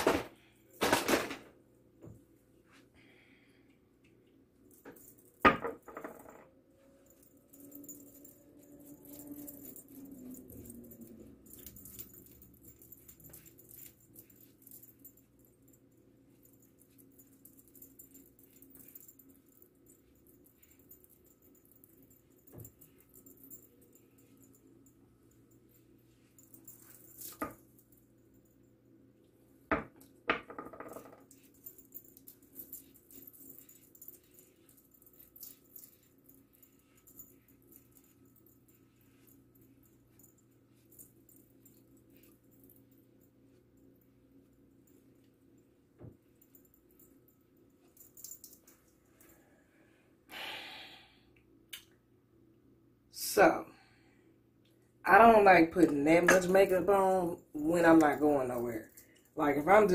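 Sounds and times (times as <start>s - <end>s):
faint steady hum: 0.0s - 59.9s
bangle bracelets jingling: 4.6s - 28.6s, 30.5s - 44.0s.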